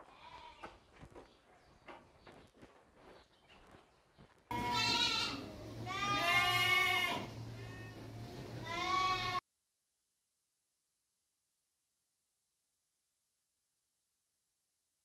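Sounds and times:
sheep bleating: 4.5s - 9.4s.

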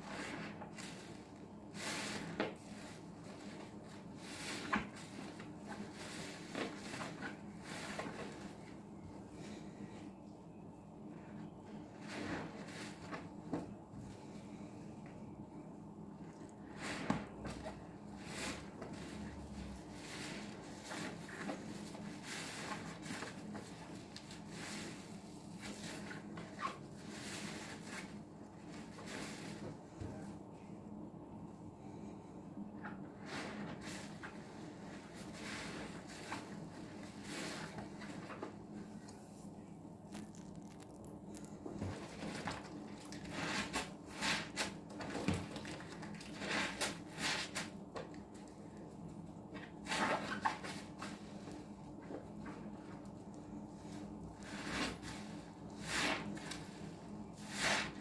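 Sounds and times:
sponge squishing foam: 39.4s - 44.6s
wet sponge squelches: 40.1s - 42.2s.

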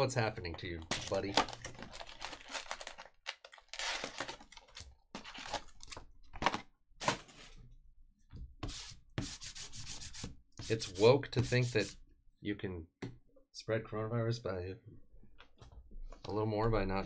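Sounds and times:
foil packs rustling: 0.9s - 7.5s.

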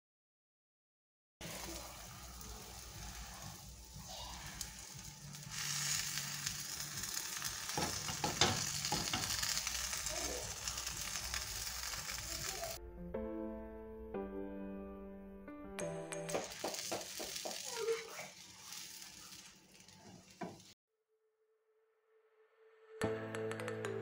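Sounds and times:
tortilla sizzling in a frying pan: 1.4s - 12.8s, 16.3s - 20.8s.

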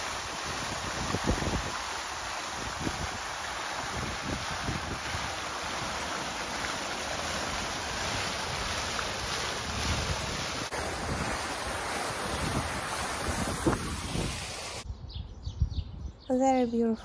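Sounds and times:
fountain water splashing: 0.0s - 14.8s
wind buffeting microphone: 0.2s - 5.9s, 9.4s - 16.3s.

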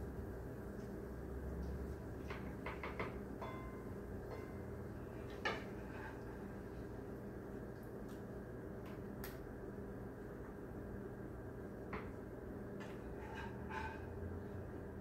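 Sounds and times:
utensil knocking on pan: 2.3s - 4.7s
utensil clicking and scraping a pan: 12.8s - 14.2s.

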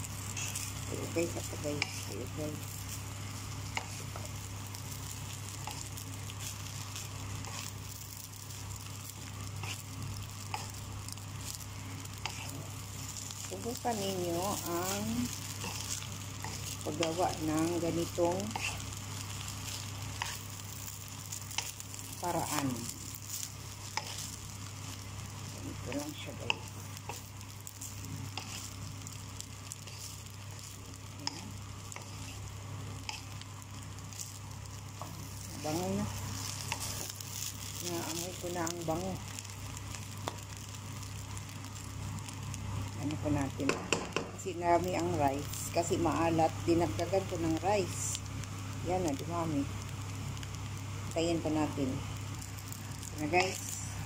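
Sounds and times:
rice sizzling in a pan: 0.0s - 54.0s
steady low hum: 0.0s - 54.0s
spatula scraping a pan: 0.2s - 0.8s, 12.0s - 13.3s, 18.4s - 19.0s, 27.9s - 28.8s.

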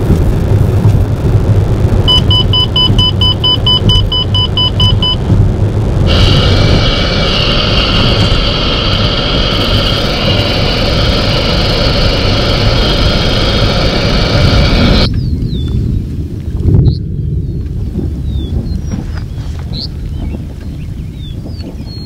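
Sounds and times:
car engine and road rumble: 0.0s - 22.0s
rapid electronic beeping: 1.8s - 15.1s
road and tyre hiss: 3.7s - 15.1s.

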